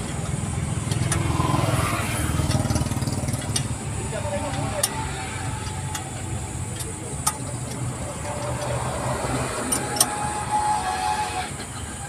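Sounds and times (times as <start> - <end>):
spanner clinking on bolts: 0.0 - 10.5
low engine rumble: 0.0 - 12.0.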